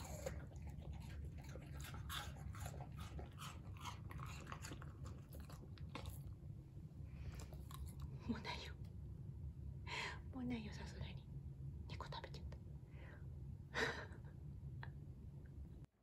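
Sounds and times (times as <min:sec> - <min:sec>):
dog crunching apple: 0:00.0 - 0:06.4, 0:07.2 - 0:08.2.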